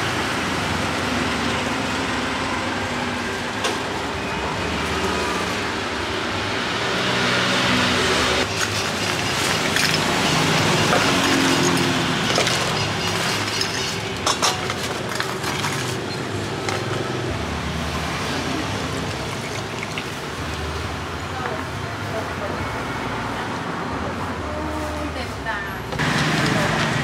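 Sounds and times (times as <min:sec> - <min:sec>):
street traffic: 0:00.0 - 0:27.0
juice pouring over ice: 0:08.4 - 0:14.1, 0:18.2 - 0:20.8
ice cubes clinking into a cup: 0:08.4 - 0:17.0, 0:18.8 - 0:20.3.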